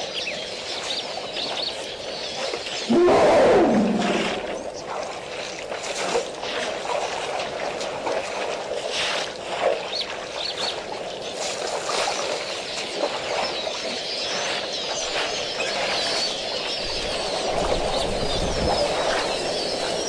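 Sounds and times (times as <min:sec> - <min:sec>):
water splashing and trickling: 0:03.6 - 0:15.4.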